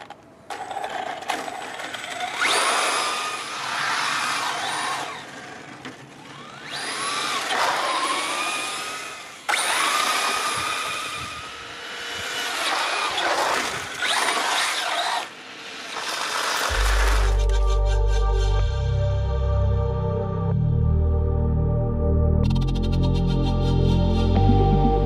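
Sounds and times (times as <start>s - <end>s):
electric motor whining: 0.6s - 18.0s.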